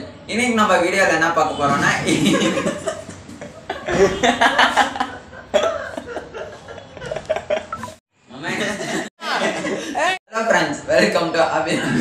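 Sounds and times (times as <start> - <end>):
boys laughing: 1.9 - 10.2.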